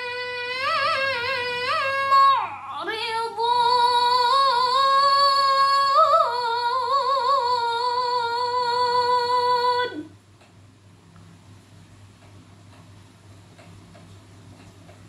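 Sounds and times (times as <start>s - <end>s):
woman reciting melodically: 0.0s - 10.2s.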